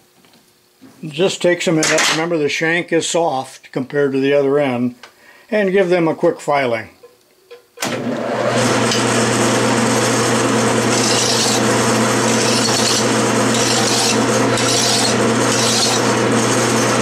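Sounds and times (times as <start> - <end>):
metal lathe running: 8.2 - 17.0
file rasping on metal: 10.8 - 17.0.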